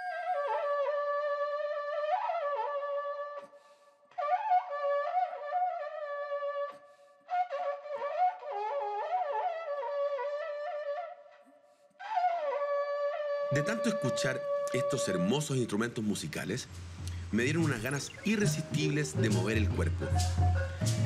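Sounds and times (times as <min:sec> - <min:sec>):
long cane horn blowing: 0:18.1 - 0:21.0.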